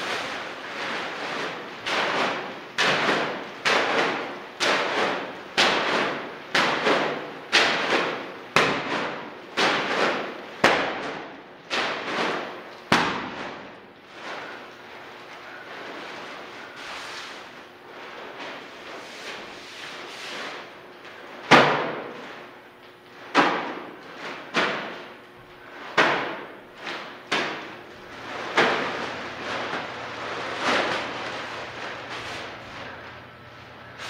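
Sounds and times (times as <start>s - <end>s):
heavy bag slammed on concrete: 0.0s - 14.7s, 23.3s - 33.0s.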